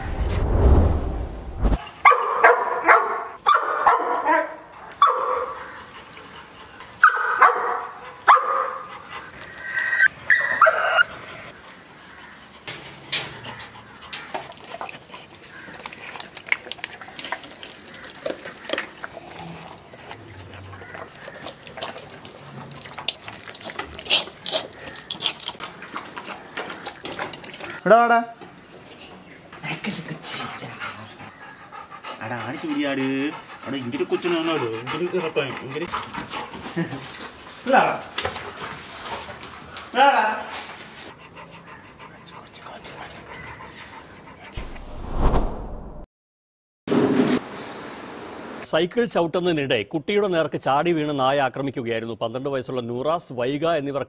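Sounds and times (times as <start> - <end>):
dog barking and yelping: 2.0 - 5.6, 7.0 - 8.9, 9.7 - 11.3.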